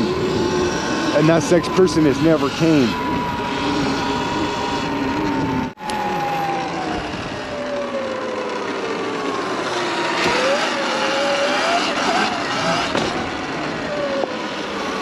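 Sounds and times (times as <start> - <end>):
electric motor whine: 0.0 - 15.0
wind noise: 6.8 - 7.6.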